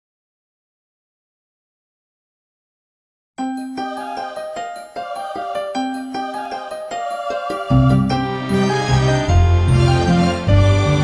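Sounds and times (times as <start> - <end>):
background music with bass line: 7.7 - 11.0.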